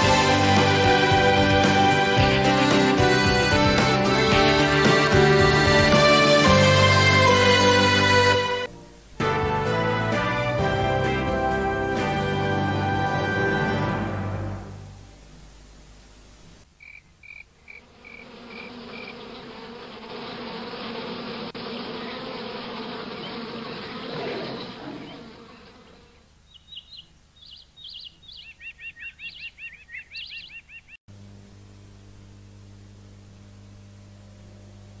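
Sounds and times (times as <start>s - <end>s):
bee buzzing: 0.0s - 27.1s
low steady hum: 14.0s - 17.6s, 31.1s - 35.0s.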